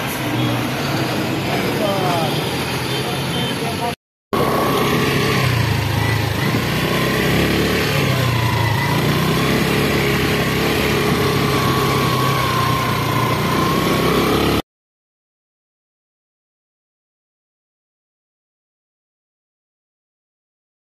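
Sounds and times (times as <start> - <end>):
scooter engine running: 4.4 - 14.6.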